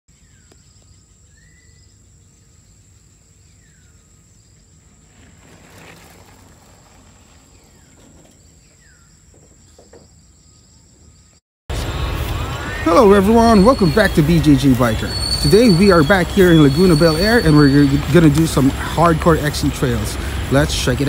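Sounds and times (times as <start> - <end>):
mountain bike rolling past: 4.2 - 10.4, 13.0 - 21.0
bird whistles sliding down: 13.4 - 18.1.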